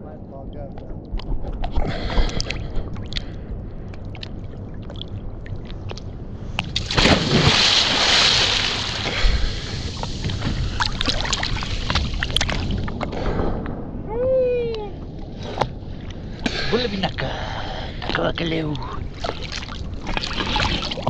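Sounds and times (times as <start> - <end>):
wind rumble on microphone: 0.0 - 21.0
ocean water splashing: 4.0 - 13.1, 19.0 - 21.0
rush of water: 6.7 - 13.1.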